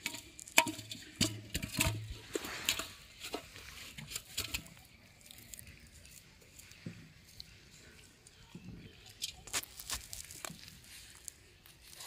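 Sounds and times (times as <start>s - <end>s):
water splashing in metal pot: 0.0s - 5.0s.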